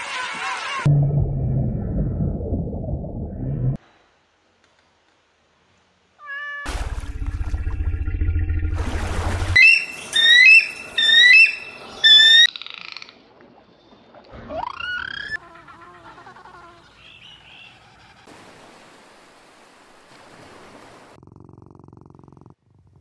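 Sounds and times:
bird of prey calling: 9.6s - 13.0s.

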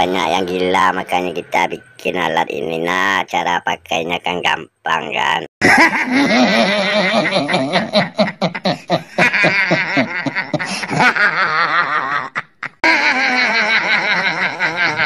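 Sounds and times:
boy laughing: 5.6s - 15.0s.

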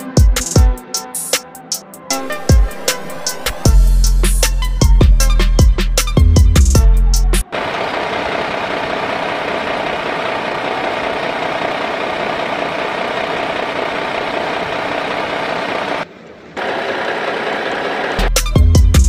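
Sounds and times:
engine idling: 7.4s - 19.0s.

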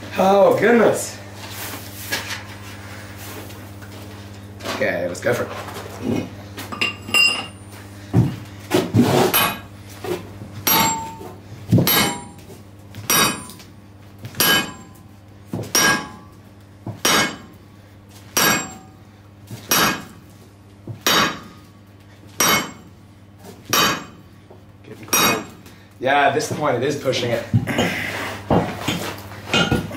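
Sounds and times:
hammer clanging on steel: 9.3s - 9.7s, 10.7s - 12.4s, 13.1s - 13.6s, 14.4s - 15.0s, 15.7s - 16.2s, 17.0s - 17.5s, 18.4s - 18.9s, 19.7s - 20.1s, 22.4s - 22.8s, 23.7s - 24.2s, 25.1s - 25.6s.

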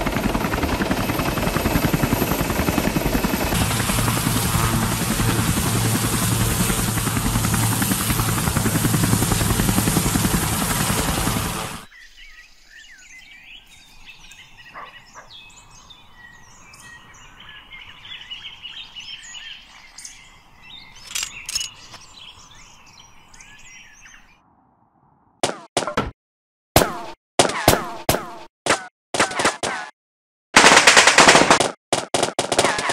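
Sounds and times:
helicopter rotor chopping: 0.0s - 11.9s
small birds chirping: 11.5s - 24.4s.

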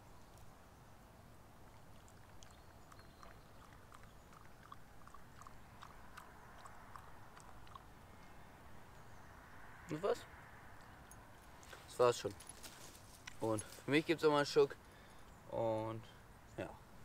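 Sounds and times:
dog lapping water: 1.7s - 7.9s.

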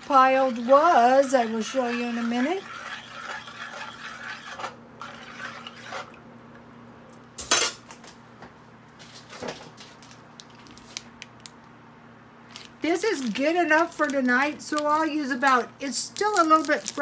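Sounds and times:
faint steady hum: 0.0s - 17.0s
spoon scraping frying pan: 0.6s - 6.1s.

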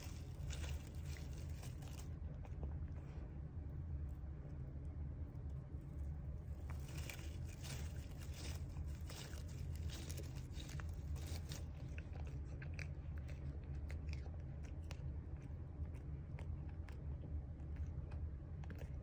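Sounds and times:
cat chewing dry stems: 0.0s - 19.0s
low steady hum: 0.0s - 19.0s.

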